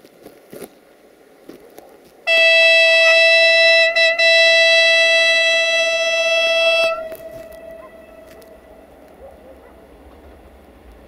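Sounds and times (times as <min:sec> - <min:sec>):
train horn: 0:02.3 - 0:10.2.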